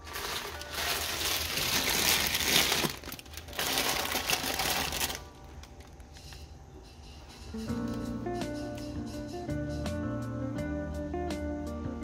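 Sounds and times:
plastic packets crinkling: 0.0s - 6.2s.

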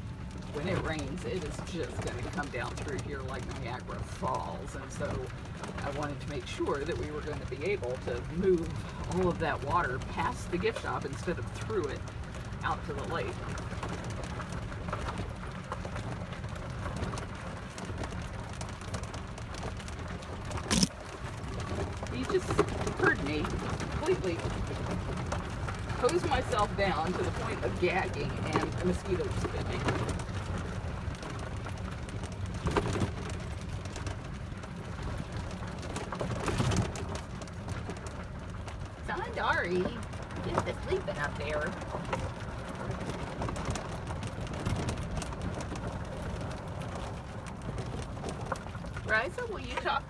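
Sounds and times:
tyres crackling on gravel: 0.0s - 50.0s
utility vehicle rolling over grass: 0.0s - 50.0s.

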